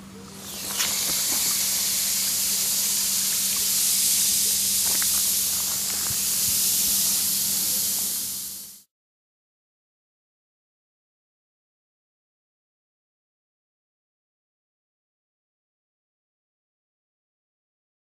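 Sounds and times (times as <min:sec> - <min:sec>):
steam hissing: 0:00.1 - 0:08.9.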